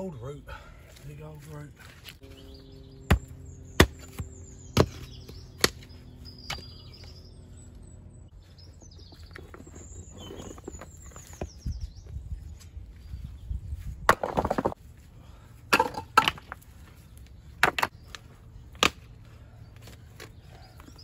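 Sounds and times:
birds chirping: 0:00.0 - 0:21.0
scraping of soil and stones: 0:09.1 - 0:11.6.

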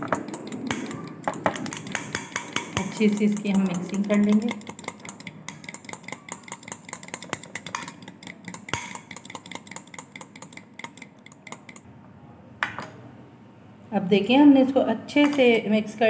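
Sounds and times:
metal spoon beating in a glass bowl: 0:00.0 - 0:11.8.

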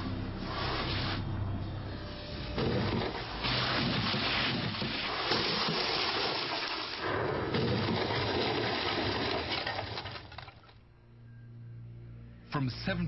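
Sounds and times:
car rushing splashing hiss: 0:02.5 - 0:07.1.

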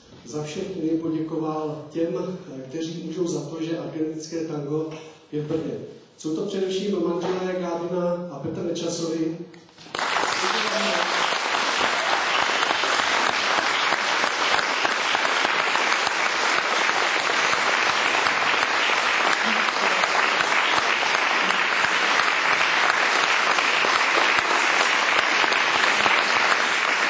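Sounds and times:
audience applauding: 0:09.8 - 0:27.0.

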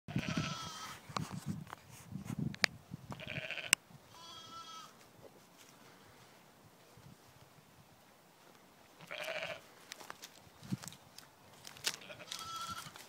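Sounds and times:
sheep bleating: 0:00.1 - 0:01.0, 0:03.2 - 0:05.0, 0:09.0 - 0:09.7, 0:12.0 - 0:13.0.

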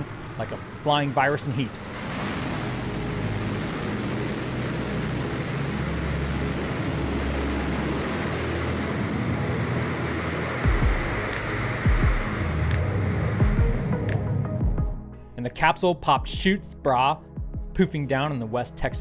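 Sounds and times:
rocket engine exhaust rush: 0:00.0 - 0:14.7
deep rumble: 0:00.0 - 0:15.2.

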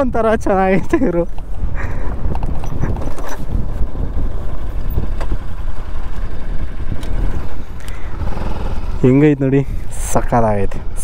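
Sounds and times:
motorcycle engine rumbling: 0:00.0 - 0:11.0.

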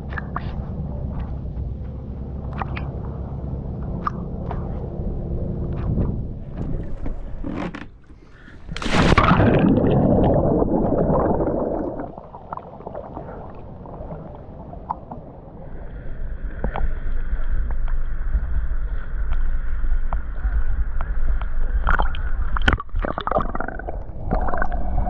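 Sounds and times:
boat motor rumble with whine: 0:00.0 - 0:08.7
water gurgling and sloshing: 0:00.0 - 0:25.0
loud splash: 0:08.7 - 0:12.4.

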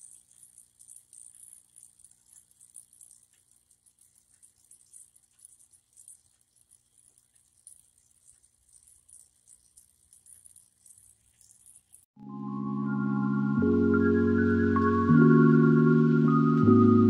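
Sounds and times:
faint high crackle: 0:00.0 - 0:12.1.

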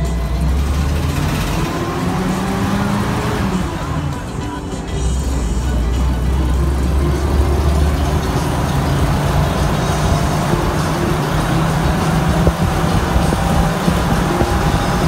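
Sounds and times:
vehicle engine drone: 0:00.0 - 0:15.0.

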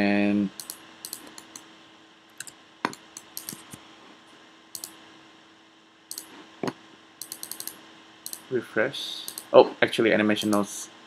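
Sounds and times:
faint steady hum: 0:00.0 - 0:11.0
mouse and keyboard clicks: 0:00.6 - 0:01.6, 0:02.4 - 0:03.8, 0:04.8 - 0:05.0, 0:06.1 - 0:06.3, 0:07.2 - 0:08.5, 0:09.3 - 0:09.5, 0:10.4 - 0:10.6.

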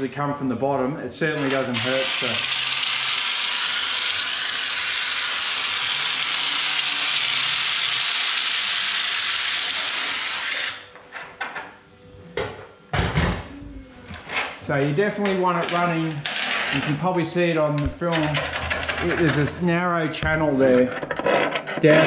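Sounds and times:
spray gun hissing: 0:01.8 - 0:10.0.

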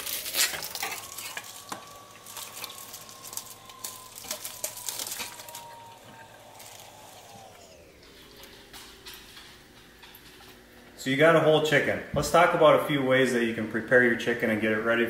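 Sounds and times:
plastic bag crinkling: 0:00.0 - 0:10.7.

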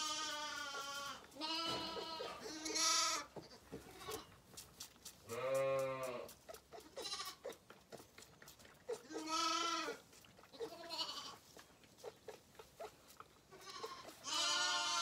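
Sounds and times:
lambs bleating: 0:00.0 - 0:04.3, 0:05.3 - 0:07.6, 0:08.9 - 0:11.4, 0:13.5 - 0:15.0.

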